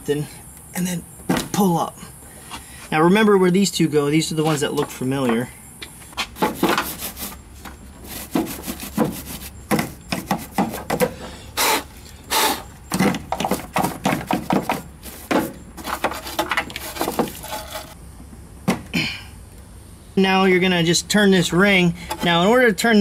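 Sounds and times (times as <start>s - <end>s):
brush scrubbing plastic: 6.4s - 7.4s, 8.0s - 11.0s, 13.4s - 18.0s.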